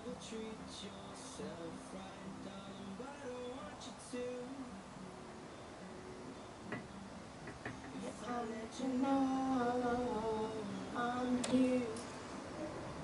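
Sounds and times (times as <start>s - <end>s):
woman singing: 8.0s - 12.2s.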